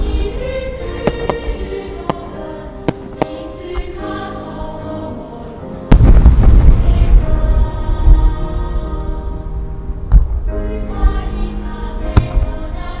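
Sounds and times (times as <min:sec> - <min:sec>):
choral music: 0:00.0 - 0:13.0
fireworks popping: 0:01.0 - 0:04.0, 0:05.9 - 0:07.4, 0:12.2 - 0:12.6.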